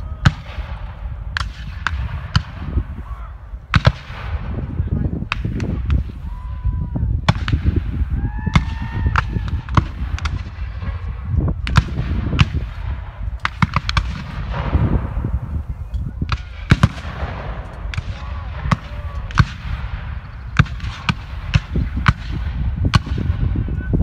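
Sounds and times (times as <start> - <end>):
musket shots: 8.6 - 15.3, 16.2 - 23.5.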